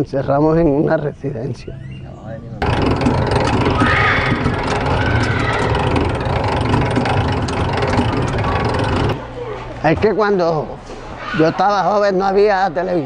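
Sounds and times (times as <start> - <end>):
street traffic noise: 1.6 - 9.3.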